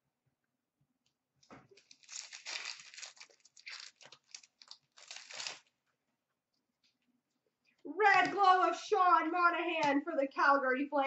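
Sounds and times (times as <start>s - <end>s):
wrapper tearing and crinkling: 1.8s - 5.8s.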